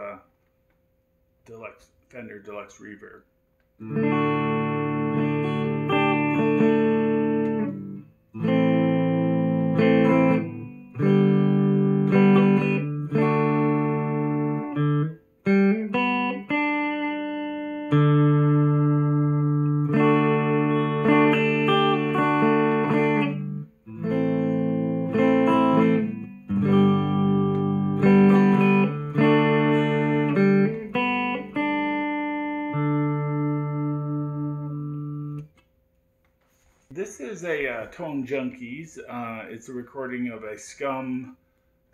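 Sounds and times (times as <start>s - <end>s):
clean electric guitar chords: 3.8s - 35.6s.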